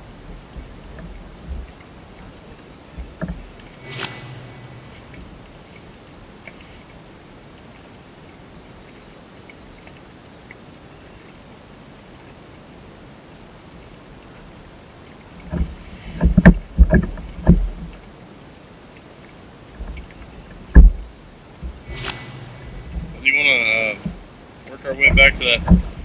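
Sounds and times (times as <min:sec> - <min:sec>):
faint background hiss: 0:00.0 - 0:26.0
thumps and knocks on kayak: 0:00.2 - 0:03.8, 0:15.4 - 0:18.0, 0:19.8 - 0:22.0, 0:25.0 - 0:26.0.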